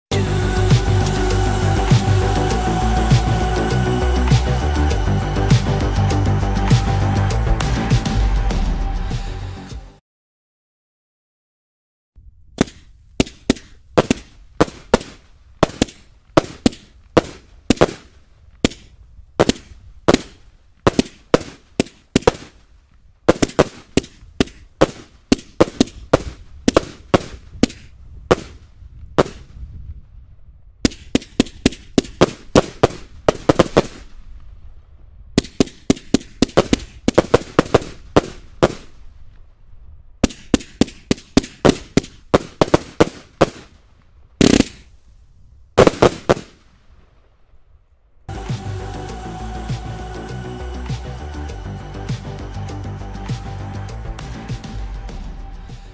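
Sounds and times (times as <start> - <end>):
firework cake bangs: 12.6 - 22.6, 23.3 - 28.6, 29.2 - 29.5.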